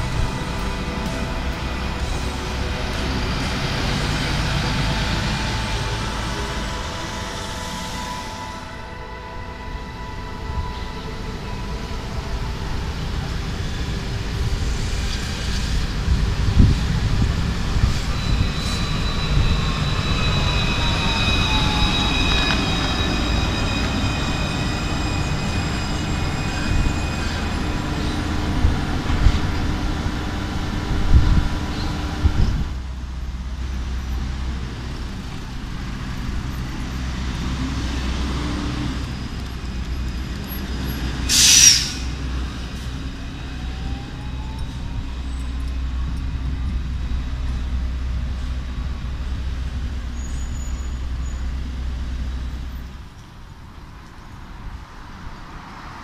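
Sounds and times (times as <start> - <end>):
road traffic rumble: 0.0 - 56.0
tram electric motor whine: 0.0 - 56.0
tram wheels rumbling: 0.0 - 56.0
short loud hiss: 41.3 - 42.2.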